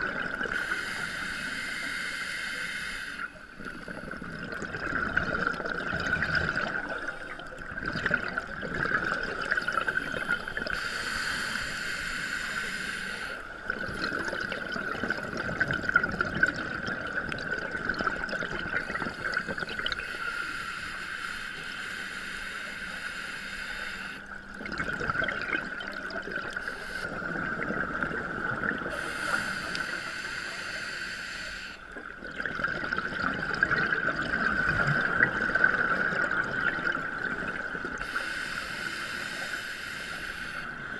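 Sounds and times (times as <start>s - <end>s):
regulator hissing inhalations: 0.5s - 4.1s, 9.8s - 13.5s, 18.8s - 24.4s, 26.5s - 27.2s, 28.9s - 32.0s, 38.0s - 40.9s
gurgling exhaust bubbles: 3.7s - 10.7s, 13.6s - 20.0s, 24.4s - 29.0s, 32.0s - 38.1s.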